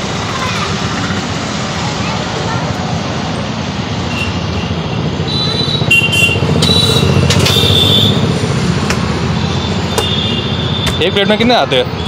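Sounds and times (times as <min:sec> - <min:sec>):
motorcycle engine running: 0:05.0 - 0:10.5.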